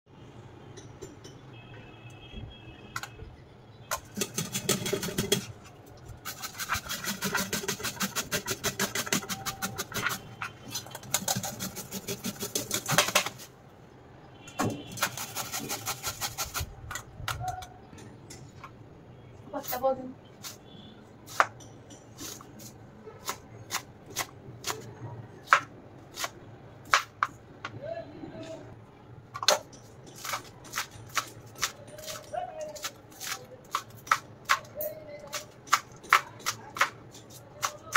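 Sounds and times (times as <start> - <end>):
carrot scraping on metal grater: 6.2 - 13.4, 14.9 - 16.7
knife chopping on cutting board: 21.3 - 21.6.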